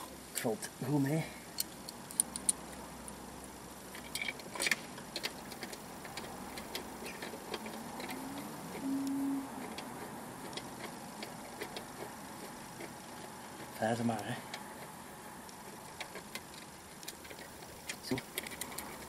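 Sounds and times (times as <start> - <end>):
brief low tone: 8.2 - 9.6.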